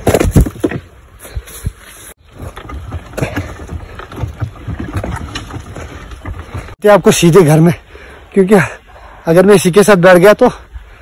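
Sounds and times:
handcart rattling on dirt track: 0:02.2 - 0:07.6.

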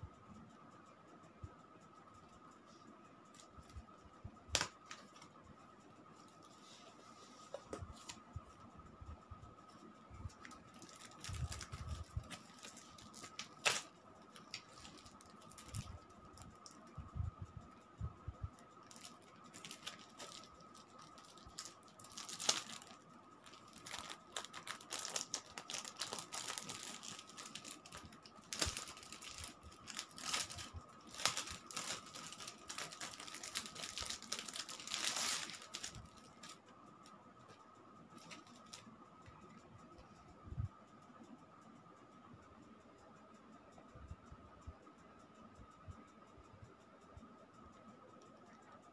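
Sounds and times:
plastic wrapping crinkling: 0:10.3 - 0:16.8, 0:18.8 - 0:36.6, 0:38.2 - 0:38.8.

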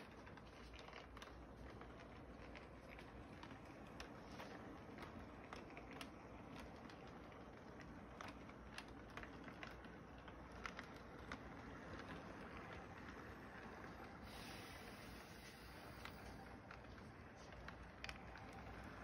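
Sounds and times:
model train wheels clicking: 0:00.0 - 0:19.0
model train humming: 0:12.5 - 0:19.0.

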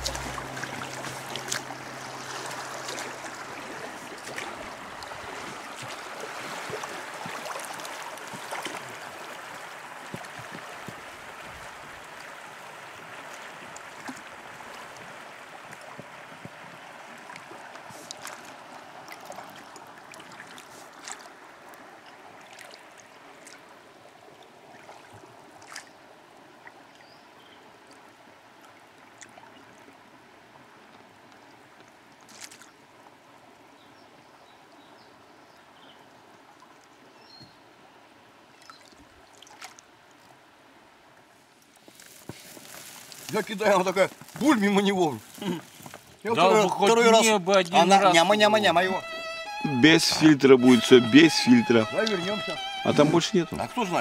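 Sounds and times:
river flowing over riffle: 0:00.0 - 0:26.9, 0:37.7 - 0:54.0
faint ticks and splashes: 0:00.0 - 0:30.2, 0:30.8 - 0:37.6, 0:38.5 - 0:40.5, 0:41.1 - 0:46.3.

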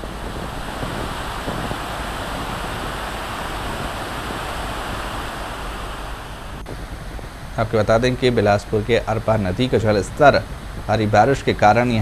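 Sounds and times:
water rushing through gates: 0:00.0 - 0:06.6
low water rumble: 0:00.0 - 0:12.0.

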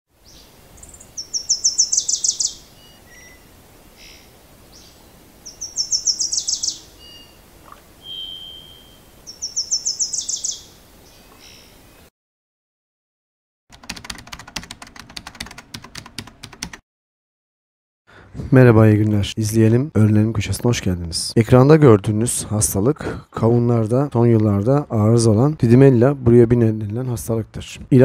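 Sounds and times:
songbird trilling: 0:00.2 - 0:12.0
faint bird chirps: 0:00.2 - 0:12.1.

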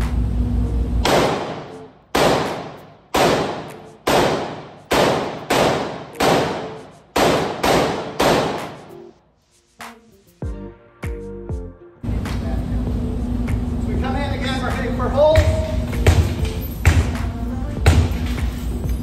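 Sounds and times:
rifle shots echoing indoors: 0:01.0 - 0:08.8.

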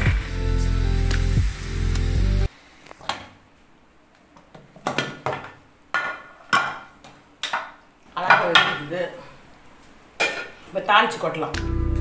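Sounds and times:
background music: 0:00.0 - 0:02.5, 0:11.6 - 0:12.0.

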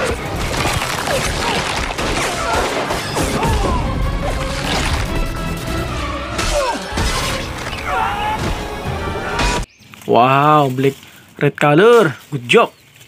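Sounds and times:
smashing and crashing impacts: 0:00.0 - 0:05.7
action film music: 0:00.0 - 0:09.7.

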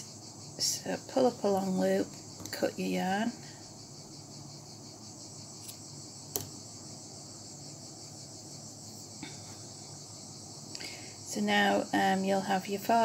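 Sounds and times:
high background hiss: 0:00.0 - 0:13.0.

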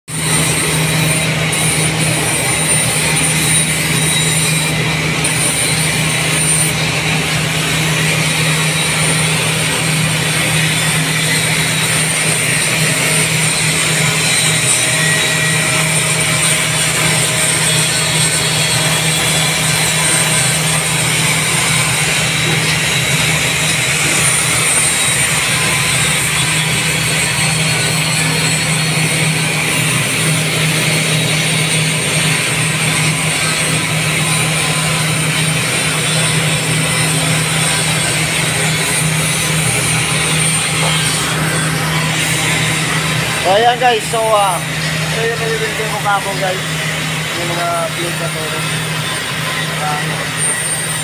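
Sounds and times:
angle grinder grinding steel: 0:00.1 - 0:51.0.

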